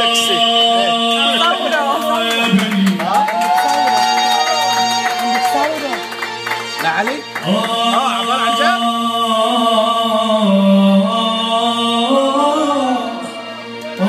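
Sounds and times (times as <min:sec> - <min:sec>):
man singing: 0:00.0 - 0:04.0, 0:07.3 - 0:14.0.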